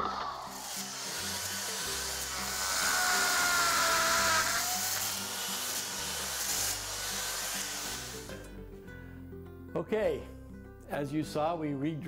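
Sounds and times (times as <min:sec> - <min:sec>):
background music: 0:00.0 - 0:12.0
hammer drill boring concrete: 0:00.1 - 0:08.3.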